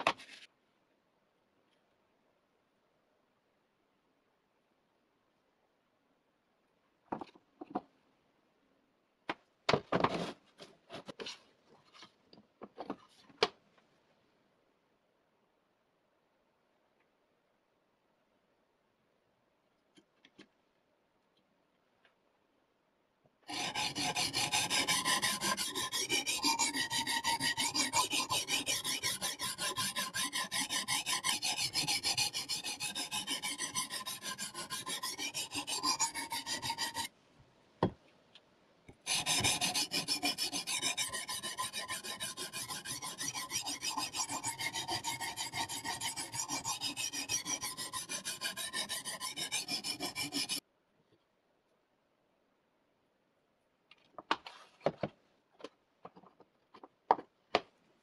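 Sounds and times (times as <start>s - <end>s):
sharpening stone scraping knife edge: 23.5s - 37.1s, 39.1s - 50.6s.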